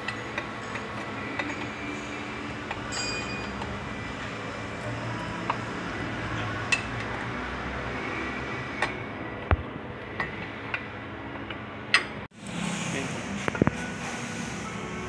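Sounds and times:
steady background noise: 0:00.0 - 0:15.0
hand tools clinking on metal: 0:02.8 - 0:03.7.

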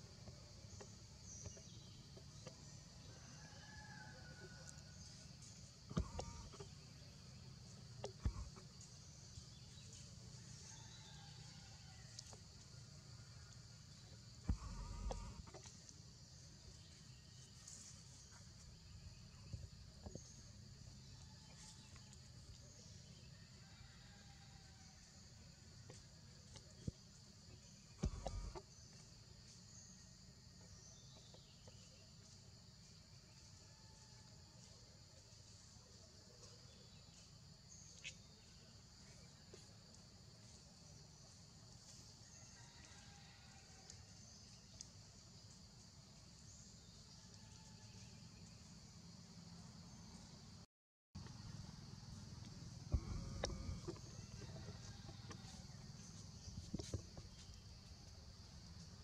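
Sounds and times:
insect chorus buzzing: 0:00.0 - 0:22.2, 0:51.2 - 0:59.0.

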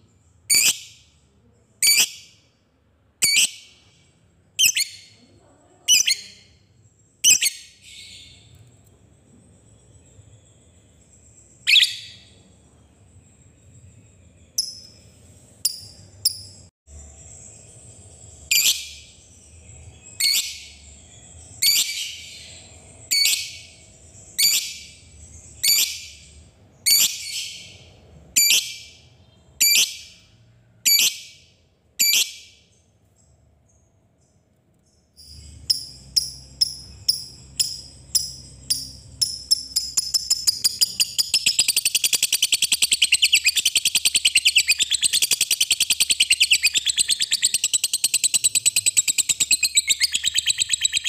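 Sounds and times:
lovebird shrill rasping calls: 0:39.4 - 0:51.0.

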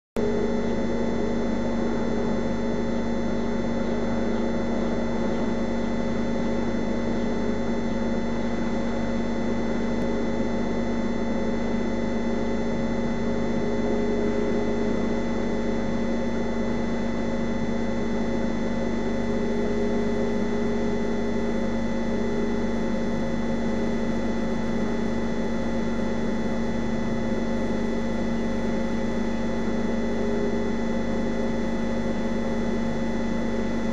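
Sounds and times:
electrical hum: 0:00.2 - 0:33.9.

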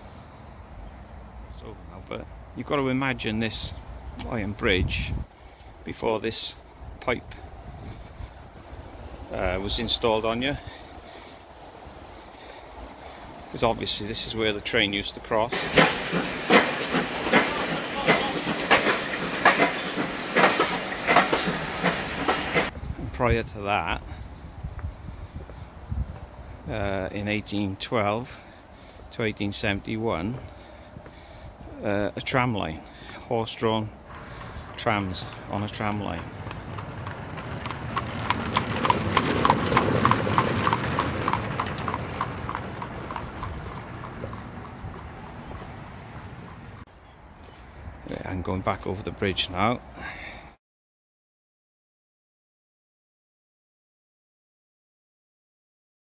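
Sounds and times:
steady hiss: 0:02.8 - 0:22.7
footsteps on footbridge: 0:15.5 - 0:22.7, 0:34.1 - 0:46.9
horse hooves clip-clopping: 0:15.5 - 0:22.7, 0:34.1 - 0:46.8.

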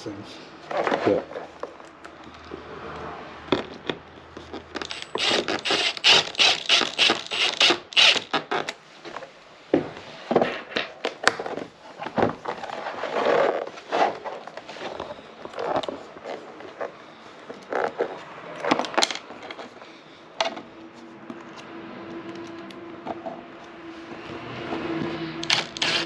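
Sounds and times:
cordless driver driving screw: 0:04.8 - 0:08.8, 0:25.4 - 0:26.0.

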